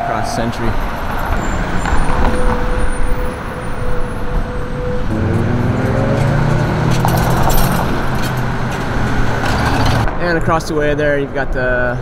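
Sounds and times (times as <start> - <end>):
road traffic passing: 0.0 - 12.0
vehicle engine accelerating: 0.7 - 10.1.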